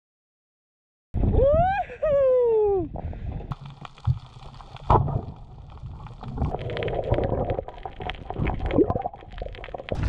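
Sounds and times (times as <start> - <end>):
water gurgling and bubbling: 3.5 - 10.0.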